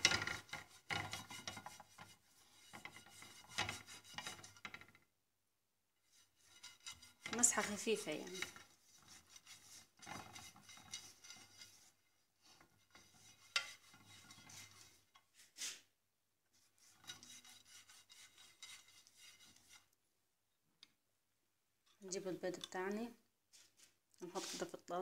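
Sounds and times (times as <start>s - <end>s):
brush scraping frying pan: 0.0s - 5.0s, 6.0s - 15.8s, 16.6s - 20.0s, 24.3s - 24.7s.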